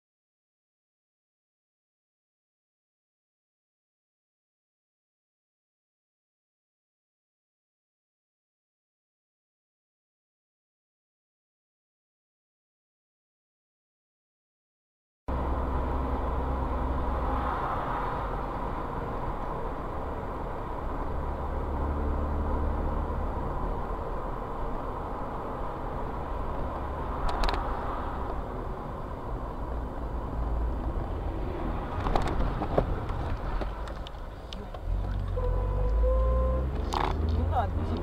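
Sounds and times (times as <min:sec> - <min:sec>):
car engine and road rumble: 0:15.3 - 0:38.0.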